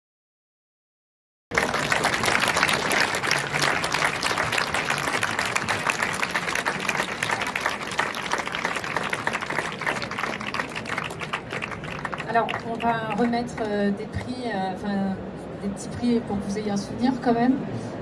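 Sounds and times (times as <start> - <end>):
audience applauding: 1.5 - 13.8.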